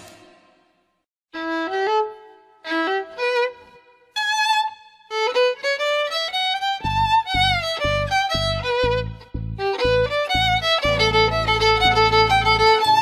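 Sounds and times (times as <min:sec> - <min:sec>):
violin melody: 0:01.3 - 0:13.0
low beat: 0:06.8 - 0:13.0.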